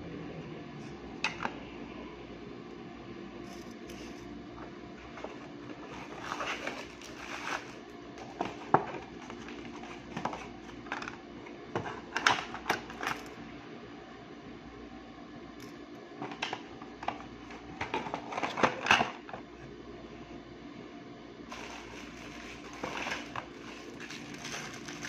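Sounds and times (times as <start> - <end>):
steady low hum: 0.0 - 25.0
paper and cardboard box rustling: 5.3 - 10.5, 21.5 - 25.0.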